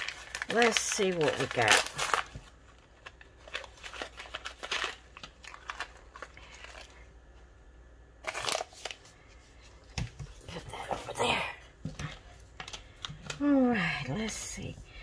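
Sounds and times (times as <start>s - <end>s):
plastic sachet crinkling: 0.0s - 7.1s.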